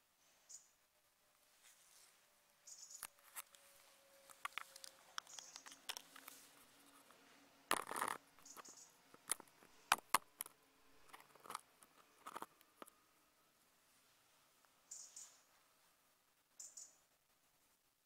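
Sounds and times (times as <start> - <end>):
sharp clicks and ticks: 4.3 - 6.4, 7.7 - 13.0.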